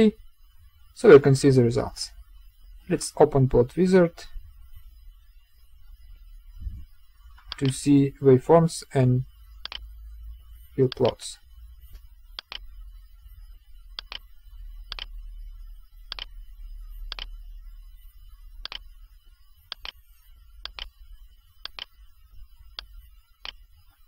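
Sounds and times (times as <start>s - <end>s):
low steady hum: 0.0s - 24.0s
computer mouse clicking: 7.4s - 7.8s, 9.6s - 9.8s, 10.9s - 11.2s, 11.9s - 12.6s, 14.0s - 14.3s, 14.9s - 15.1s, 16.1s - 16.3s, 17.1s - 17.3s, 18.6s - 18.9s, 19.7s - 20.0s, 20.6s - 21.0s, 21.6s - 22.0s, 22.8s - 23.6s.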